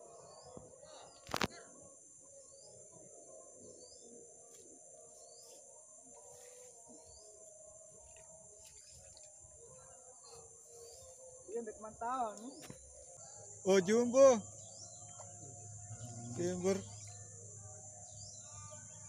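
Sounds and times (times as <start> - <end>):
high-pitched insect drone: 0.0 - 19.0
bird chirping: 9.8 - 19.0.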